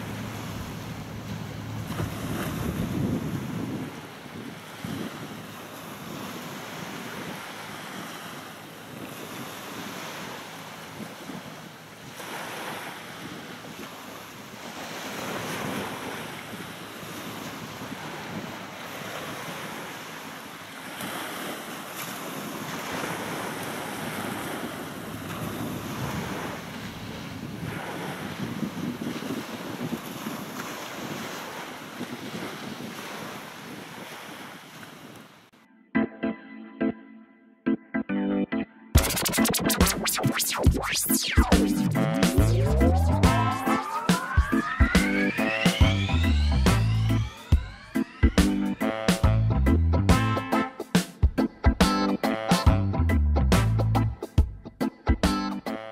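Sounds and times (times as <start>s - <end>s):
wind buffeting microphone: 0.0s - 7.4s, 22.2s - 35.2s
small waves washing: 0.0s - 35.5s.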